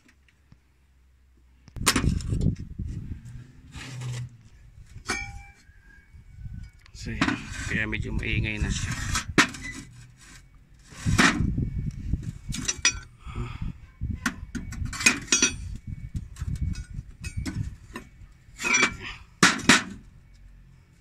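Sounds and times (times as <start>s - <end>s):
metal brake plates clinking: 5.0s - 5.6s, 12.5s - 13.1s, 14.8s - 20.0s.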